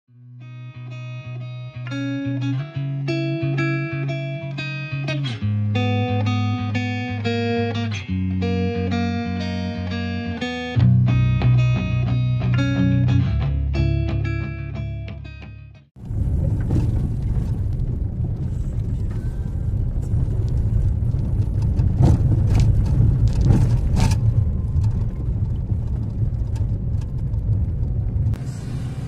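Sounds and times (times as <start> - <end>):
car road and engine rumble: 16.0 - 29.0.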